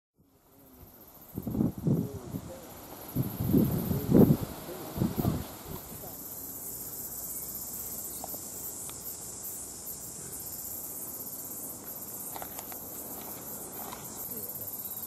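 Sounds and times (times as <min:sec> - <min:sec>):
insects chirring: 0:00.2 - 0:15.0
faint ticks: 0:08.1 - 0:09.1.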